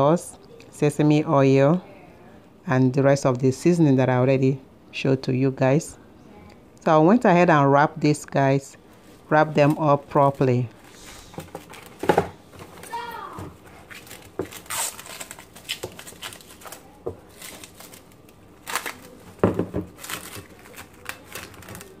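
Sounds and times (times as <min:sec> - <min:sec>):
cling wrap crinkling: 0:08.9 - 0:22.0.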